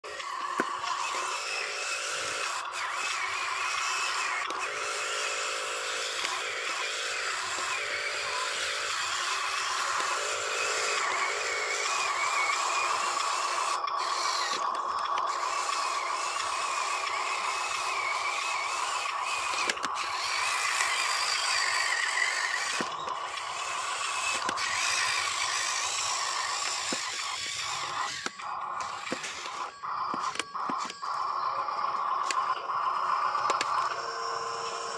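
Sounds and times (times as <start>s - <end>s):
toy truck electric motor whining: 0.0s - 34.9s
small clicks: 11.0s - 34.0s.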